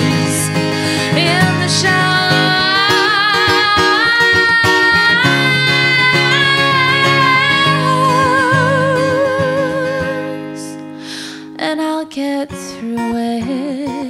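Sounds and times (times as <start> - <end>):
woman singing long held notes: 0.0 - 10.7
strummed acoustic guitar: 0.0 - 14.0.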